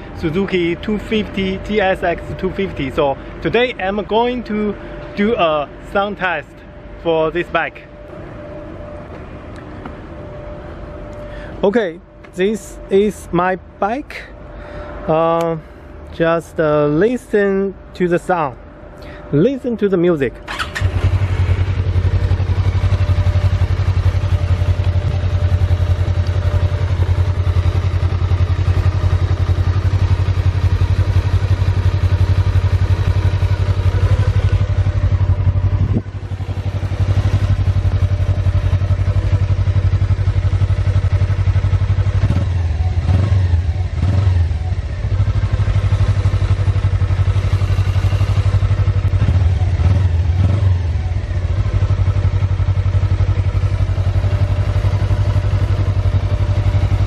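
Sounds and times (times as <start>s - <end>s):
motorcycle engine idling: 20.5s - 57.0s.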